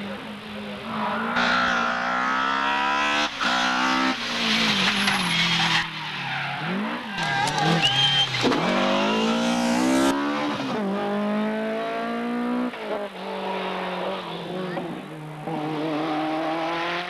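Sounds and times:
rally car engine revving: 0.7 - 17.0
tyre squeal: 4.4 - 9.6.

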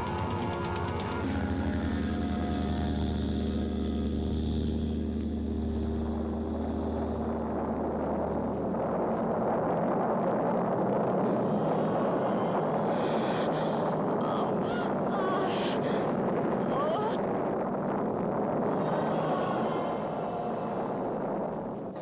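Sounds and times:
synthesizer low drone: 0.0 - 22.0
explosion rushing rumble: 5.5 - 22.0.

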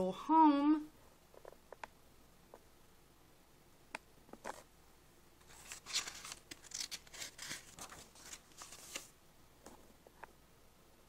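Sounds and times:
book pages rustling and turning: 4.3 - 4.7, 5.4 - 10.2.

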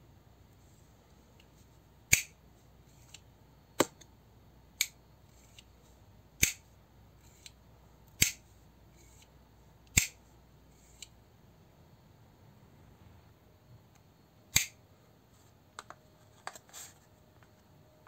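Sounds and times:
knife blade mechanism clicking: 2.1 - 2.4, 6.4 - 6.6, 7.3 - 8.4, 9.9 - 10.2, 14.5 - 14.8.

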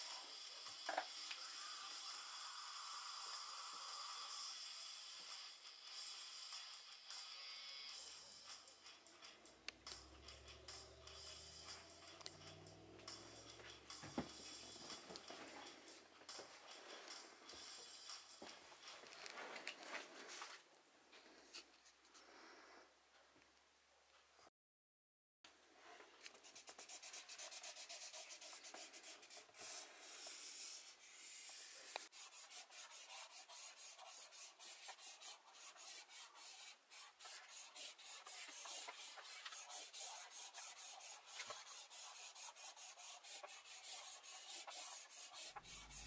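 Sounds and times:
rapid scraping strokes: 26.6 - 46.0.

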